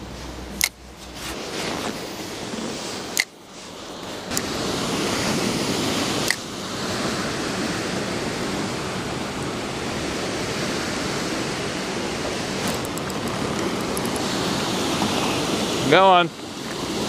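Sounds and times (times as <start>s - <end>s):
river water rushing over rocks: 2.3s - 17.0s
sharp click: 3.2s - 3.4s.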